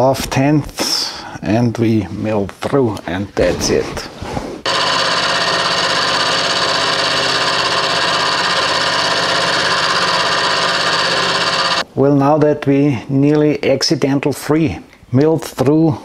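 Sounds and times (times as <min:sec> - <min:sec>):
milling machine whine: 0:04.7 - 0:11.8.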